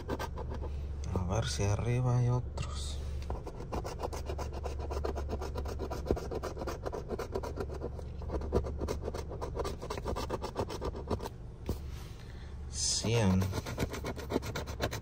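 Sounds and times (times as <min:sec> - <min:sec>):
coin scratching lottery ticket: 0:00.0 - 0:00.7, 0:03.4 - 0:11.3, 0:12.8 - 0:15.0.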